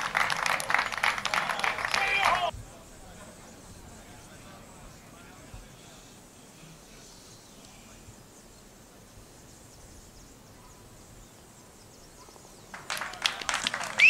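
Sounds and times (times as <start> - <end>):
spectators applauding: 0.0 - 2.5, 12.7 - 14.0
faint birds: 0.0 - 14.0
insects: 0.0 - 14.0.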